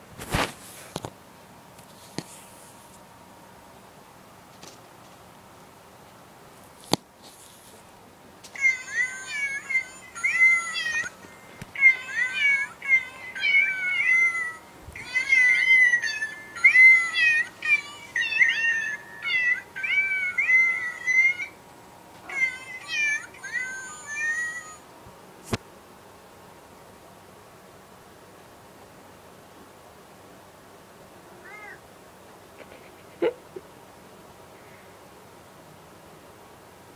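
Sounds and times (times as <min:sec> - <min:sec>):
cat meow tune from small speaker: 0:11.8 - 0:21.5, 0:22.3 - 0:24.8, 0:31.4 - 0:31.8.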